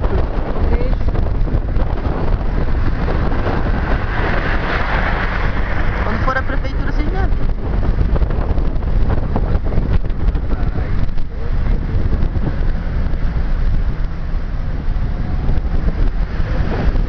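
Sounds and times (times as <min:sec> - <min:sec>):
moving car rumble: 0:00.0 - 0:17.0
wind buffeting microphone: 0:00.0 - 0:17.0.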